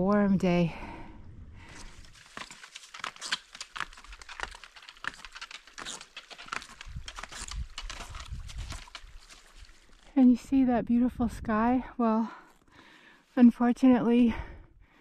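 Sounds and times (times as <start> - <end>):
snowshoe footsteps crunching on snow: 1.7 - 10.1.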